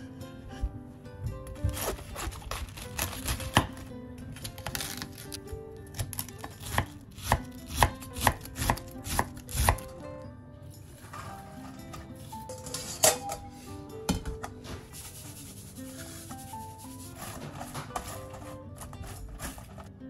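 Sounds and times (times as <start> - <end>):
knife cutting cabbage: 1.5 - 10.0, 14.6 - 20.0.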